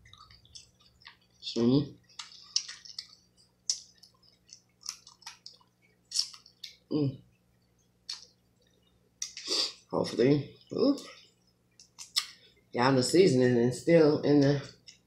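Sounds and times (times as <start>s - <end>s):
person chewing with wet smacks: 0.0s - 9.9s, 10.6s - 12.5s.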